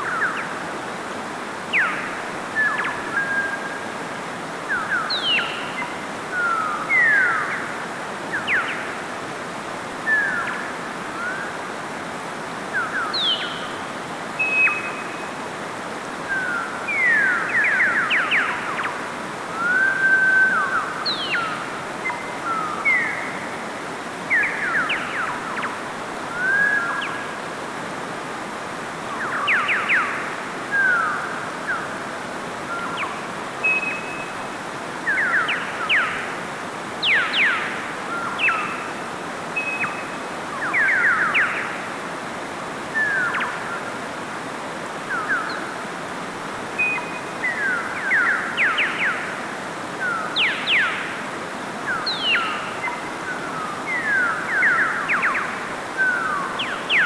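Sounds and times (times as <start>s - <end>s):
stream rushing over rocks: 0.0s - 57.0s
small birds chirping: 4.7s - 9.0s, 37.0s - 41.9s, 50.0s - 51.2s, 51.8s - 57.0s.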